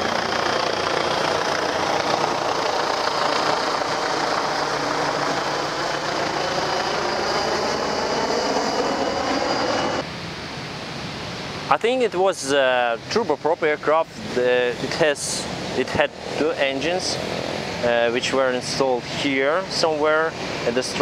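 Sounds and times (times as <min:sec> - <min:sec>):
helicopter flying overhead: 0:00.0 - 0:10.1, 0:12.1 - 0:21.0
faint high whine: 0:00.0 - 0:21.0.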